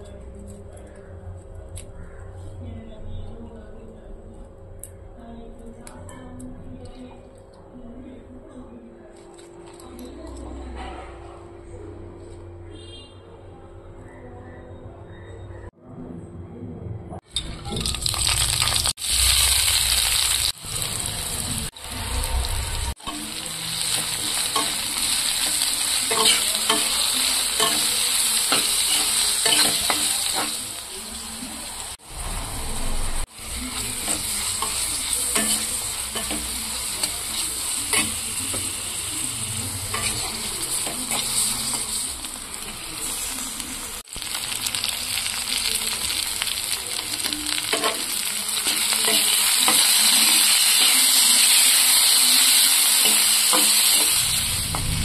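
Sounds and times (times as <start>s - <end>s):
food sizzling in hot oil: 17.3s - 55.0s
spatula scraping a pan: 39.7s - 42.1s.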